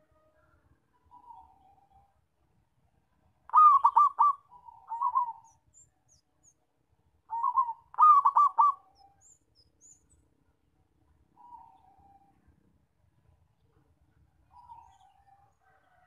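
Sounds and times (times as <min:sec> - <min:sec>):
dove cooing song: 0:01.0 - 0:02.1, 0:03.5 - 0:05.7, 0:07.3 - 0:09.3, 0:11.4 - 0:12.5, 0:14.5 - 0:16.0.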